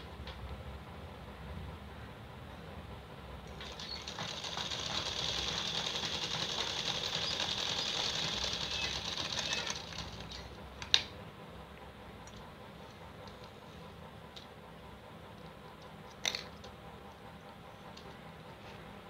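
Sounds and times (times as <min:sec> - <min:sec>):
sewing machine running: 0:03.5 - 0:10.6.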